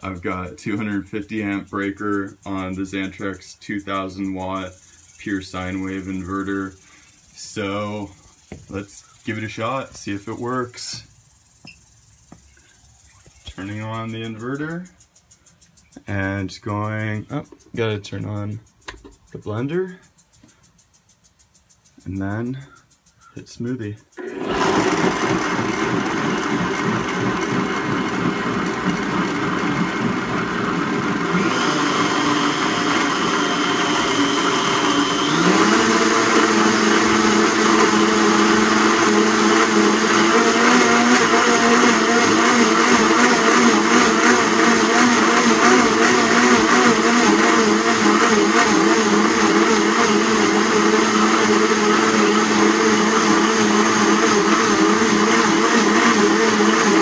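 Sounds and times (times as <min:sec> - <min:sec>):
blender running: 0:24.2 - 0:57.0.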